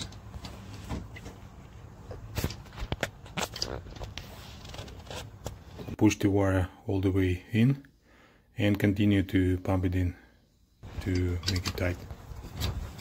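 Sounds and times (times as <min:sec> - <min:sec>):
tool rattling and rustling: 0:10.8 - 0:13.0.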